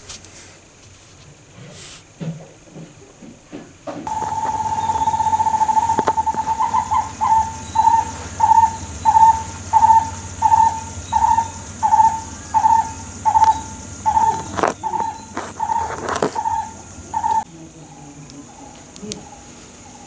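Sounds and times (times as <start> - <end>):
bird calling: 4.0 - 20.0.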